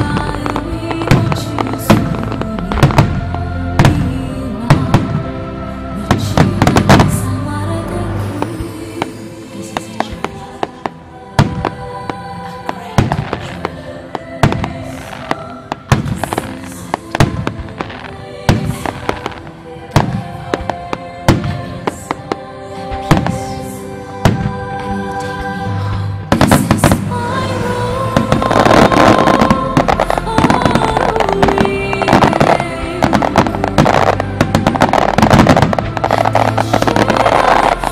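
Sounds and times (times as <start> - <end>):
music with sustained notes: 0.0 - 37.9
rapid firework bangs and crackling: 14.4 - 20.7, 28.2 - 37.8.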